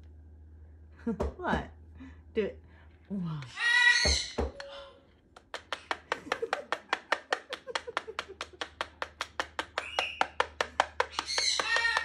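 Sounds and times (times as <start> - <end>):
parrot squawk: 3.5 - 5.0, 11.1 - 12.0
parrot tapping on cardboard box: 5.6 - 12.0.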